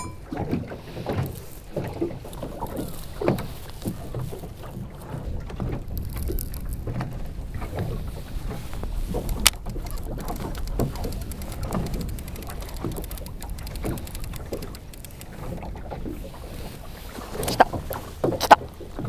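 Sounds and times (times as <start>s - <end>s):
water lapping against boat hull: 0.0s - 19.0s
wind rumble on microphone: 0.0s - 19.0s
sharp click: 9.2s - 15.4s.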